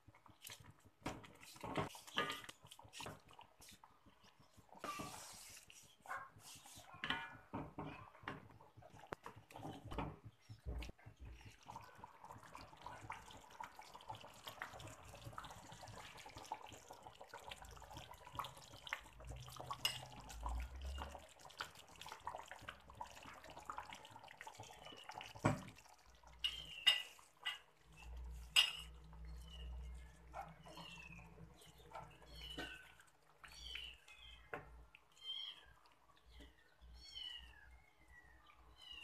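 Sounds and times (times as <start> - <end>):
wooden spatula stirring in wok: 0.0 - 11.6
curry simmering with bubbling pops: 0.0 - 38.8.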